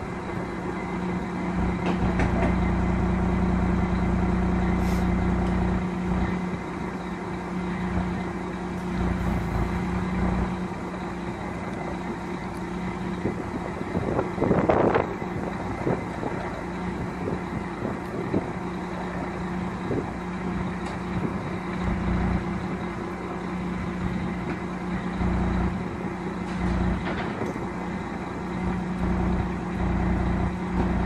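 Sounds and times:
diesel lorry engine idling: 0.0s - 31.0s.

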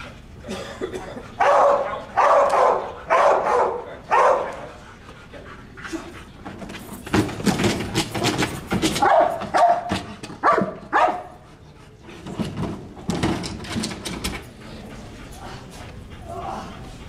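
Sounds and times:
dog barking sharply: 1.4s - 4.6s, 9.0s - 11.3s.

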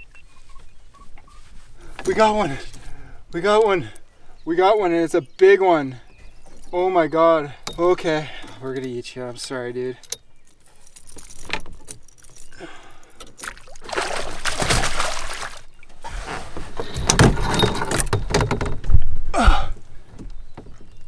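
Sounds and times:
net and tackle rattling: 10.6s - 19.0s
fish splashing water: 13.4s - 15.9s.

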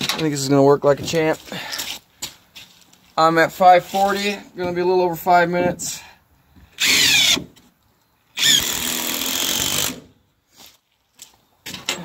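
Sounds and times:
power drill driving screws: 6.8s - 7.5s, 8.4s - 10.1s.

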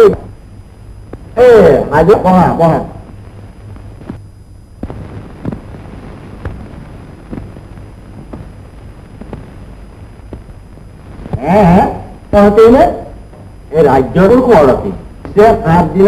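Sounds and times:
film soundtrack hiss and hum: 0.0s - 16.0s
faint clicks and pops: 1.0s - 1.4s, 3.0s - 11.4s.

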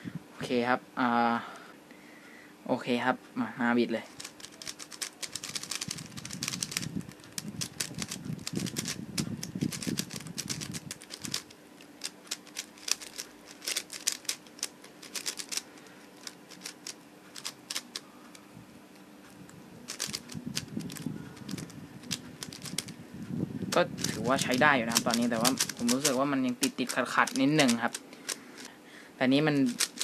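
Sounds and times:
plastic pieces rubbing: 4.1s - 18.4s, 19.9s - 23.0s, 23.7s - 28.7s, 29.5s - 30.0s
puzzle cube plastic clicks: 4.1s - 18.4s, 19.9s - 23.0s, 23.8s - 28.7s, 29.6s - 30.0s.

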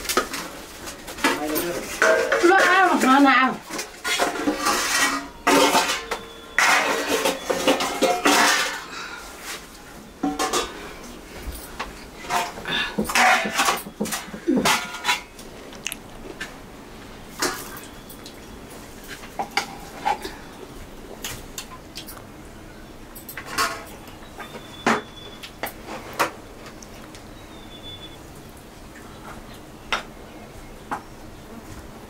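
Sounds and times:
spoon scraping steel plates: 1.2s - 8.9s, 12.2s - 15.4s
steel plates clattering on floor: 1.2s - 8.9s, 10.2s - 10.8s, 12.2s - 15.3s.

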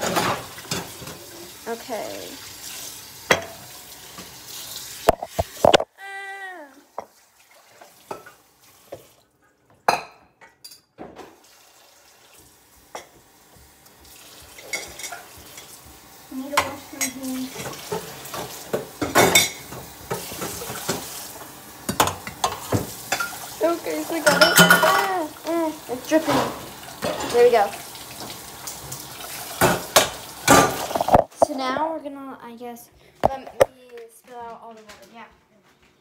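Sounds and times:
dishes and utensils clinking: 0.0s - 1.3s, 3.3s - 4.3s, 5.1s - 5.9s, 8.1s - 8.4s, 9.8s - 11.3s, 12.9s - 13.2s, 14.4s - 15.8s, 16.5s - 21.1s, 21.9s - 25.3s, 26.1s - 28.4s, 29.6s - 31.4s
kitchen tap running: 0.0s - 5.9s, 6.6s - 9.3s, 10.7s - 31.8s.

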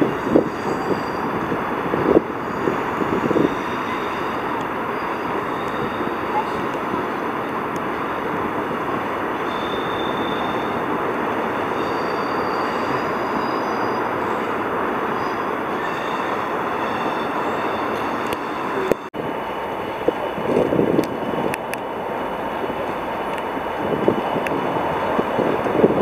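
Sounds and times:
high-pitched wheel squeal: 0.0s - 1.4s, 2.3s - 7.0s, 9.4s - 19.1s
train wheels rumbling on rails: 0.0s - 26.0s.

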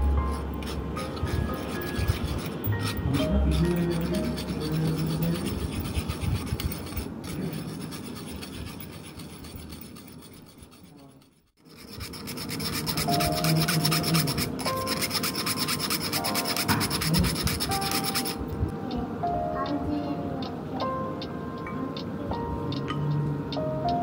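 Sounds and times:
spoon scraping a mesh sieve: 0.0s - 18.4s.

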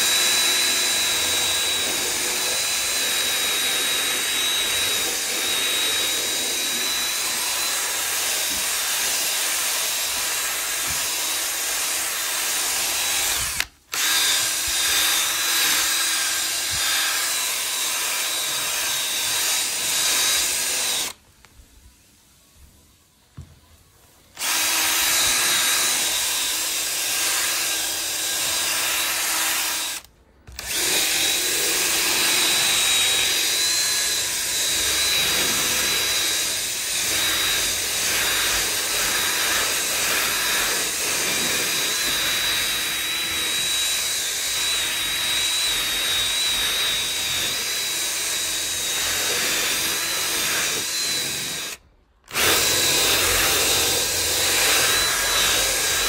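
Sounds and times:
drill motor whine: 0.0s - 21.2s, 24.4s - 56.0s.

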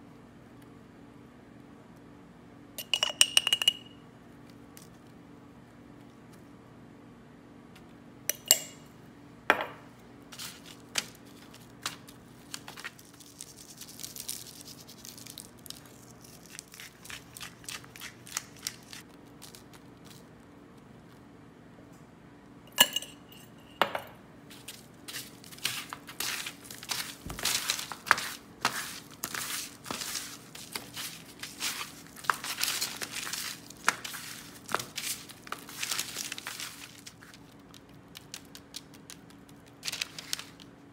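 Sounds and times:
kitchenware clinking: 2.8s - 4.0s, 8.3s - 8.9s, 22.7s - 24.2s
parchment paper crinkling: 10.3s - 21.2s, 24.5s - 40.9s.

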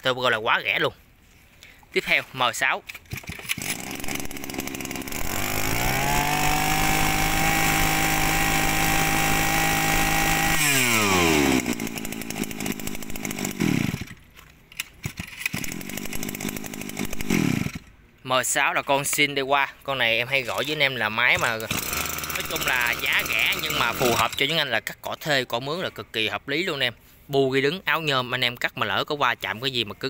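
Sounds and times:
brush cutter engine revving: 3.1s - 14.3s, 15.0s - 17.9s, 20.5s - 24.5s.

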